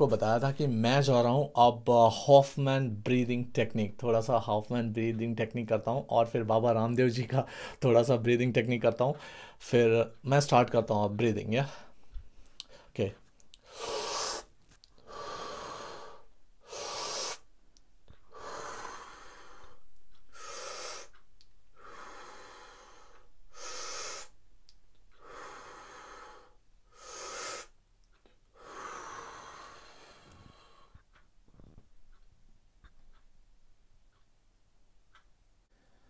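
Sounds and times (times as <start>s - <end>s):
man breathing forcefully: 7.5s - 7.8s, 9.2s - 9.6s, 13.6s - 17.5s, 18.2s - 21.2s, 21.8s - 24.4s, 25.1s - 27.8s, 28.6s - 31.0s.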